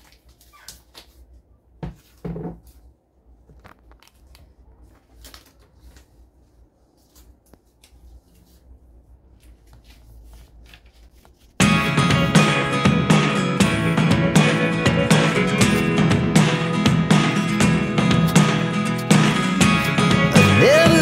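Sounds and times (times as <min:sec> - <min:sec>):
paper rustling: 0:02.0 - 0:11.6.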